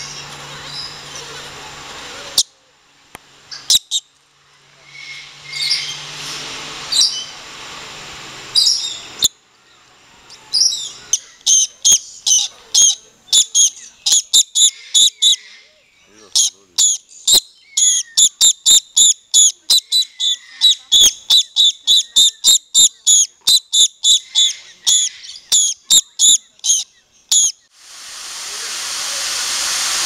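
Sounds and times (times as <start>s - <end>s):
lorikeets screeching: 3.5s - 7.4s, 8.5s - 27.6s.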